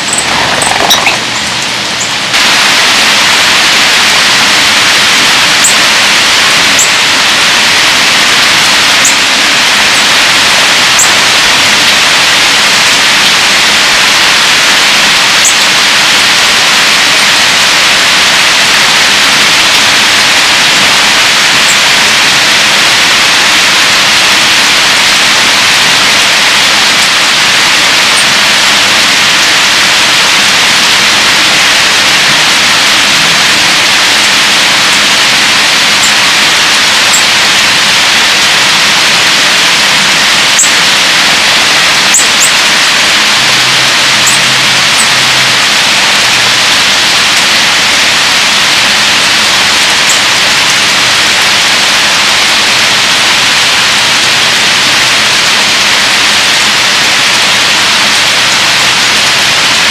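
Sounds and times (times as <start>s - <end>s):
birds chirping: 0.0s - 2.7s, 40.2s - 46.3s
heavy rain pouring: 0.0s - 59.9s.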